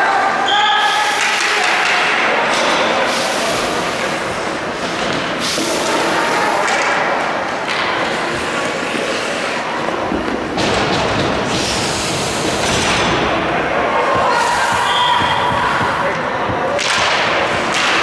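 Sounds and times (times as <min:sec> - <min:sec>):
steady rush of rink noise: 0:00.0 - 0:18.0
skate blades scraping ice: 0:07.6 - 0:10.0.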